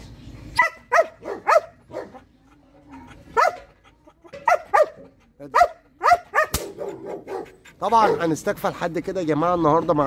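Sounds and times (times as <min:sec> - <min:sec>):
dog barking: 0:00.6 - 0:02.2, 0:03.3 - 0:03.7, 0:04.4 - 0:08.4.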